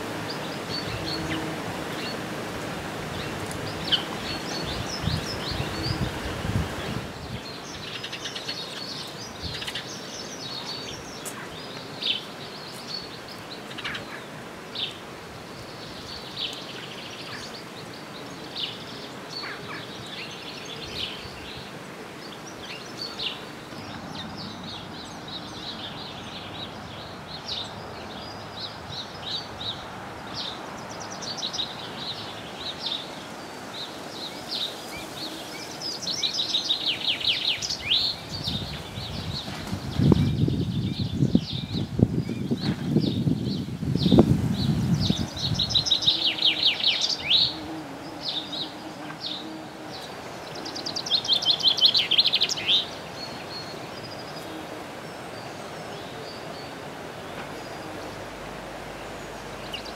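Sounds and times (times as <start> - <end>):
birds chirping: 0.0 - 59.9
outdoor hiss: 0.0 - 59.9
fast trilling birdsong: 30.4 - 54.5.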